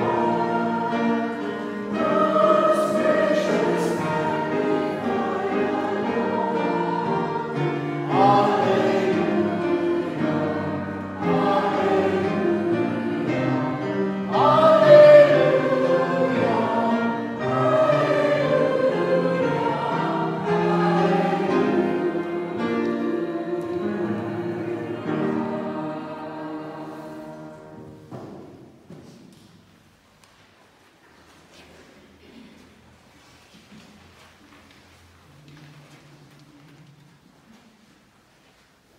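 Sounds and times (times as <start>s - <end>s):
congregation singing a hymn: 0.0s - 29.0s.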